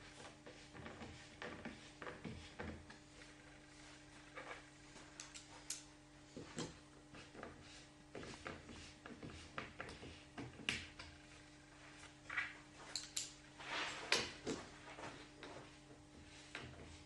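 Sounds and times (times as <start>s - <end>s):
scraping on table: 13.6s - 17.0s.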